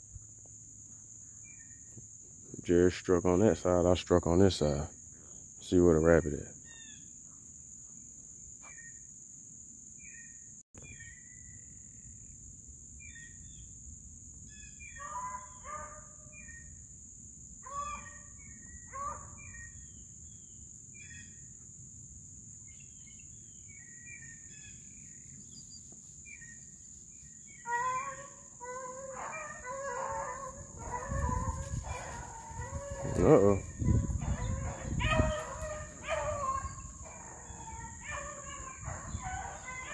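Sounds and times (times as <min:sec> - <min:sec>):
high insect drone: 0:00.0 - 0:39.9
beagles baying: 0:14.7 - 0:16.8, 0:17.6 - 0:19.8, 0:27.4 - 0:39.9.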